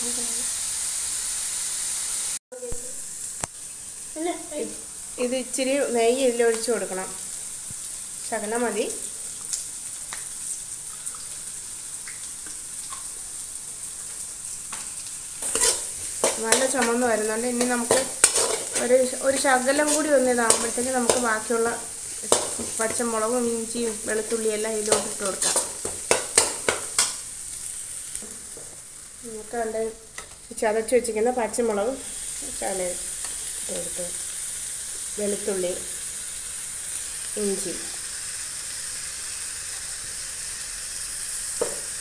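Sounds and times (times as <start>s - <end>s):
onions sizzling in a pan: 0.0s - 42.0s
spoon scraping a metal pan: 15.4s - 21.5s, 24.2s - 27.2s.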